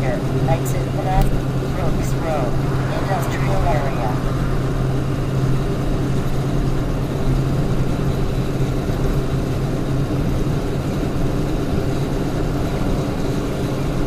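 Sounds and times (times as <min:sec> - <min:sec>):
low hum: 0:00.0 - 0:09.5
truck engine drone: 0:00.0 - 0:14.0.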